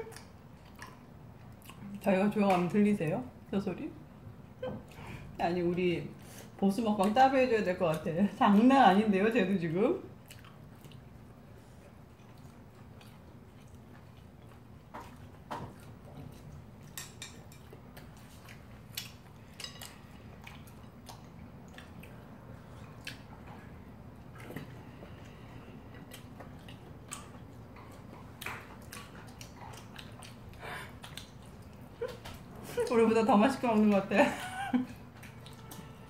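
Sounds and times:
low steady hum: 0.0 - 36.0
pet eating food: 10.0 - 36.0.

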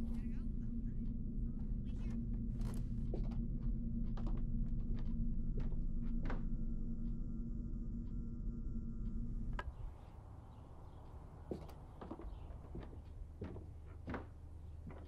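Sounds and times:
steady low hum: 0.0 - 15.0
footsteps: 11.5 - 15.0.

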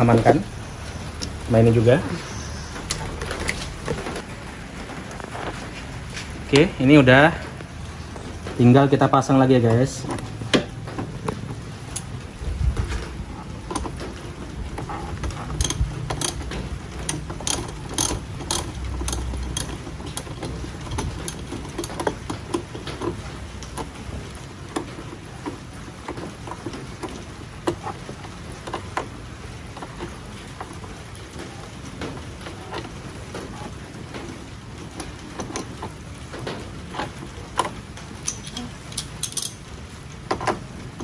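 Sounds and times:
metal taps and knocks: 9.7 - 41.0
ratchet wrench clicking: 14.9 - 24.0, 37.6 - 39.6.

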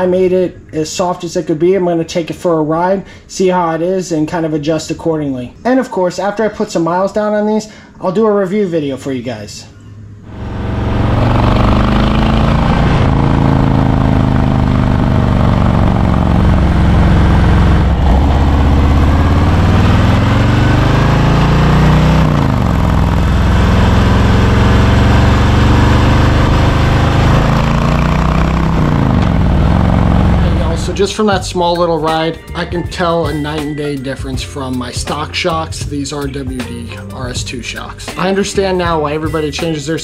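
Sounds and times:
wind and road noise: 10.1 - 31.0
motorcycle engine accelerating: 10.2 - 31.6.

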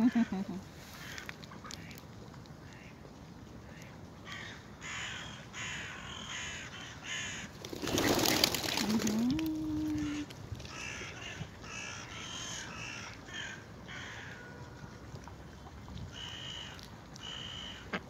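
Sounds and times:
birds giving harsh calls: 4.3 - 9.1.

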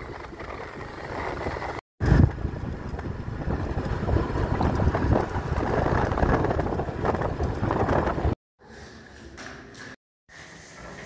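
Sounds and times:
wind buffeting microphone: 0.0 - 8.4.

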